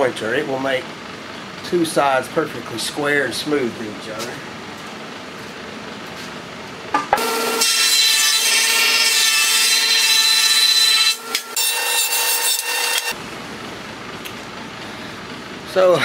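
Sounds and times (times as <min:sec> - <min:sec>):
jointer whining and cutting wood: 0:07.1 - 0:13.2.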